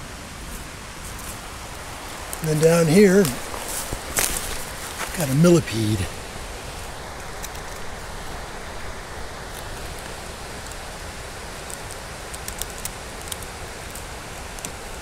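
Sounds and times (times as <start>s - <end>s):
steady outdoor hiss: 0.0s - 15.0s
faint small ticks: 11.6s - 15.0s.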